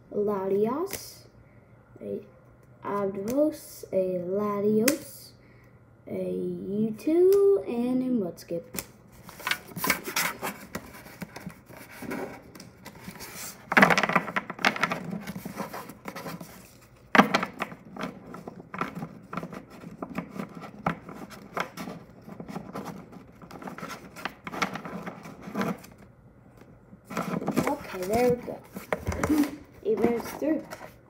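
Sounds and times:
trading cards rustling: 8.8s - 26.1s, 27.0s - 31.0s.

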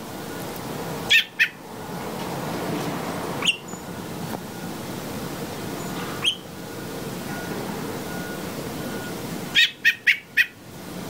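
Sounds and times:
steady background noise: 0.0s - 11.0s
high-pitched bird chirps: 1.1s - 1.6s, 3.4s - 3.8s, 5.8s - 6.5s, 9.5s - 10.6s.

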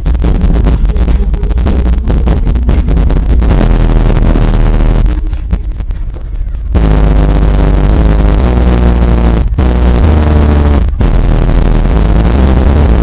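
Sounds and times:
distorted bass-heavy music: 0.0s - 13.0s.

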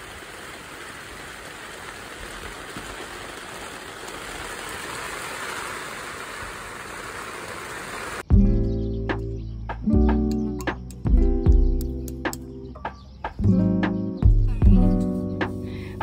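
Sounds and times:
heavy rain in strong wind: 0.0s - 8.3s
music: 8.3s - 16.0s.

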